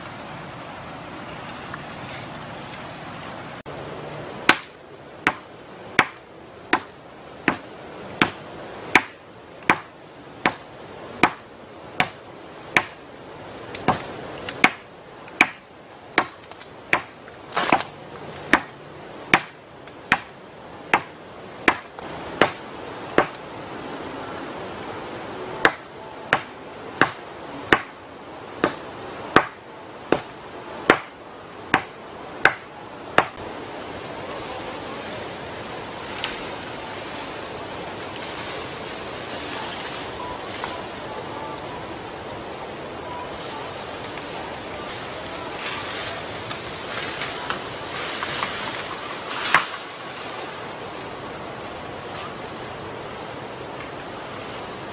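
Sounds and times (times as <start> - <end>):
blade chopping bamboo: 4.5 - 5.4, 7.5 - 8.4, 9.0 - 10.6, 12.8 - 13.0, 15.4 - 18.7, 20.9 - 22.6, 30.9 - 31.1.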